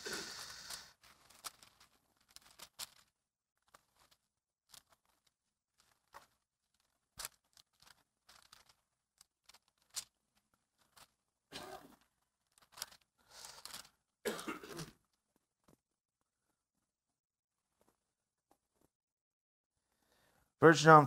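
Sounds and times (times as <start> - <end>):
thin pages rustling: 0.3 - 14.0.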